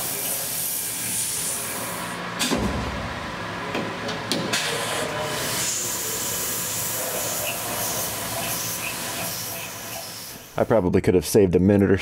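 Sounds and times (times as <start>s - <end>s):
coolant mist hissing: 0.0s - 2.1s, 4.7s - 10.6s.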